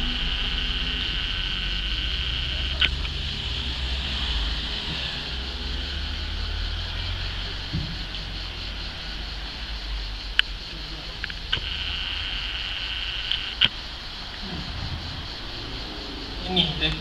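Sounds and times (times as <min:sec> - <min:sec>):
insects chirring: 0:00.0 - 0:17.0
low rumble: 0:00.0 - 0:17.0.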